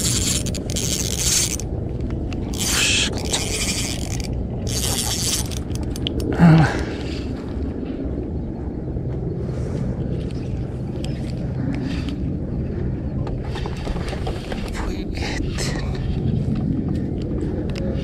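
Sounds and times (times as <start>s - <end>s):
fishing reel whirring: 0.0s - 1.7s, 2.5s - 6.3s.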